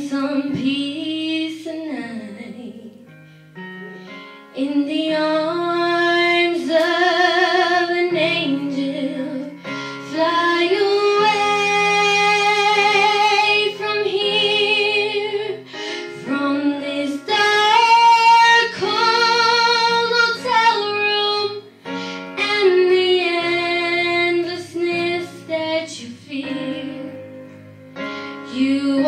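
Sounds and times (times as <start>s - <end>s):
girl singing into a microphone: 0.0s - 3.1s, 4.5s - 27.4s, 28.4s - 29.0s
backing track music: 0.0s - 29.0s
singer breathing: 3.1s - 4.4s, 9.6s - 10.1s, 15.6s - 16.2s, 21.8s - 22.4s, 28.0s - 28.4s.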